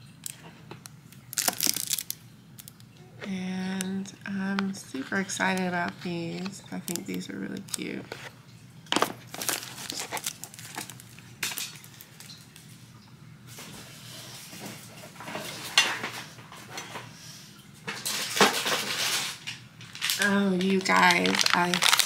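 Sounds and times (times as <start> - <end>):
plastic packaging clicks and clatter: 0.2 - 2.8, 5.3 - 8.3, 8.9 - 12.4, 17.9 - 22.0
plastic packaging rustling: 1.2 - 2.8, 4.6 - 12.6, 18.0 - 22.0.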